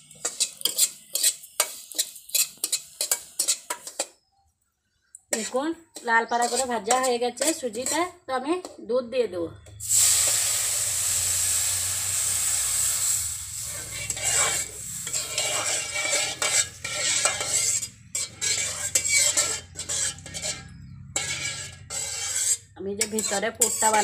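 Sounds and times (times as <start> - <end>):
metal spatula scraping wok: 0.0 - 4.3, 5.3 - 8.2, 9.8 - 24.0
milk sizzling in hot wok: 0.0 - 4.3, 5.3 - 8.7, 9.7 - 24.0.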